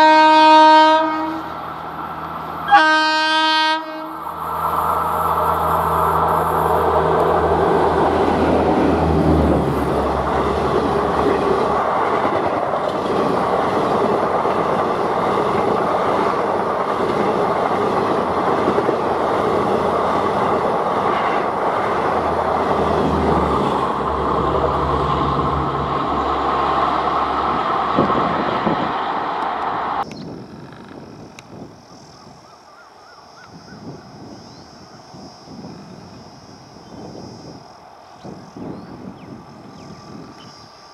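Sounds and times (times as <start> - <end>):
locomotive low hum: 4.0 - 31.4
train wheels clattering on rails: 7.1 - 29.8.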